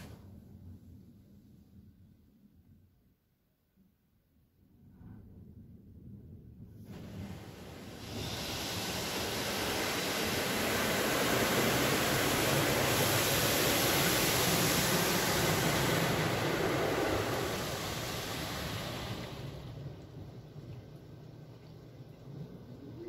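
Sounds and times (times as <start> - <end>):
car wash water spraying: 0.0 - 0.2, 6.9 - 20.6.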